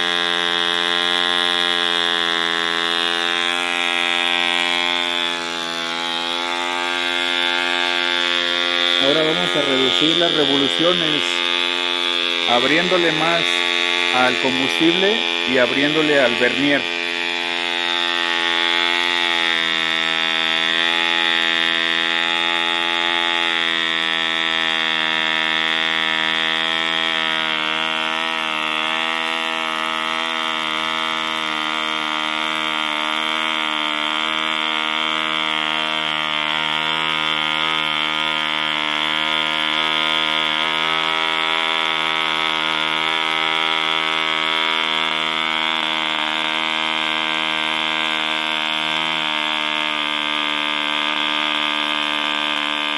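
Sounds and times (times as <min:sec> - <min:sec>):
model engine running at high revs: 0:00.0 - 0:52.9.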